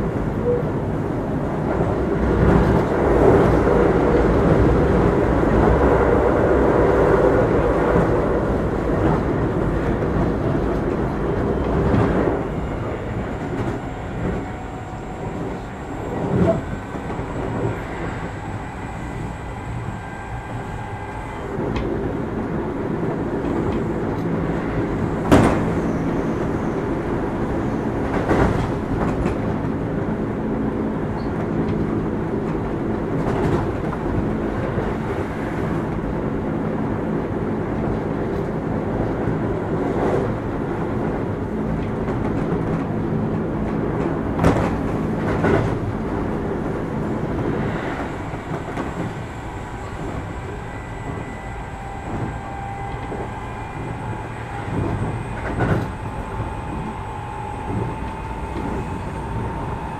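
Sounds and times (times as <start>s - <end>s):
train wheels and motors rumbling: 0.0s - 59.9s.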